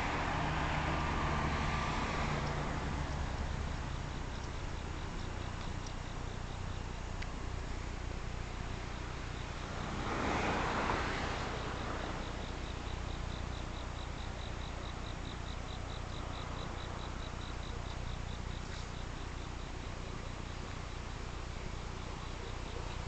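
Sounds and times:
constant low hum: 0:00.0 - 0:23.0
insect chirping: 0:00.0 - 0:23.0.

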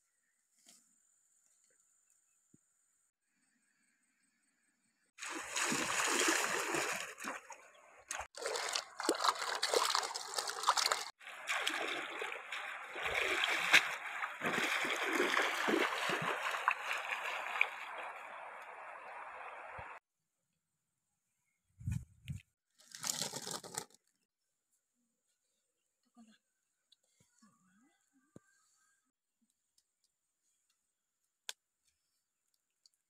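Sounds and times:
water splashing from wading: 0:05.2 - 0:20.0.

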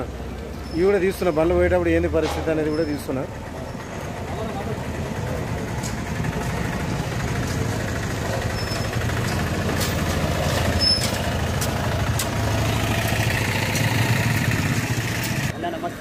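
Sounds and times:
motorcycle engine: 0:03.3 - 0:15.6
three-wheeler engine running: 0:03.3 - 0:16.0
sharp clicks and knocks: 0:09.0 - 0:14.0.

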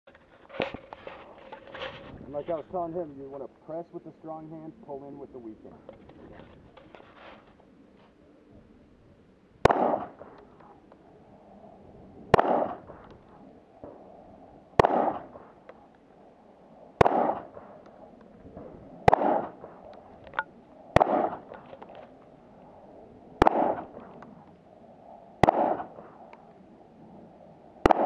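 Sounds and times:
pistol shots with echo: 0:09.6 - 0:10.4, 0:12.3 - 0:12.9, 0:14.8 - 0:15.4, 0:17.0 - 0:17.7, 0:19.0 - 0:19.8, 0:20.9 - 0:21.6, 0:23.4 - 0:24.0, 0:25.4 - 0:26.0.

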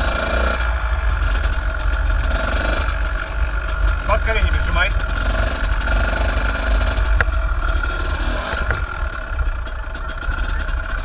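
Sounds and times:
dirt bike engine running: 0:00.0 - 0:11.0.

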